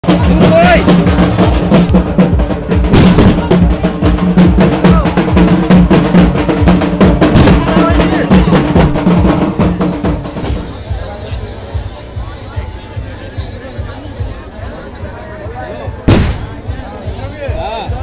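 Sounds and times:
drums beaten fast: 0.0s - 11.1s
crowd voices: 0.0s - 18.0s.

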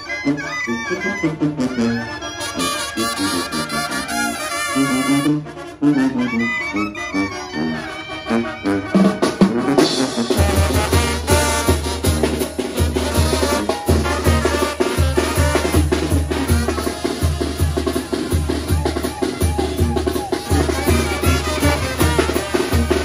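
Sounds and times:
brass band playing: 0.0s - 23.0s
tuba and bass drum rhythm: 0.0s - 23.0s
snare drum: 9.0s - 23.0s.

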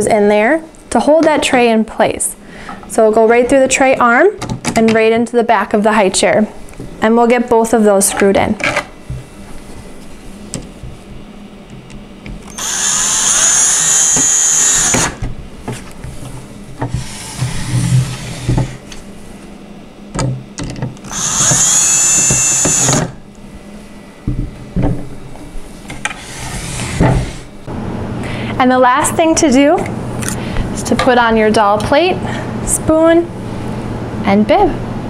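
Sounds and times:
cordless drill driving screws: 12.5s - 15.2s, 21.1s - 23.2s.

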